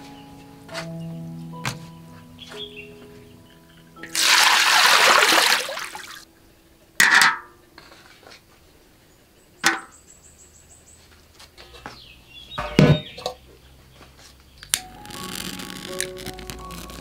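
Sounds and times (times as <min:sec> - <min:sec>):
soft background music: 0:00.0 - 0:08.1, 0:14.6 - 0:17.0
water poured into a wok: 0:04.1 - 0:06.2.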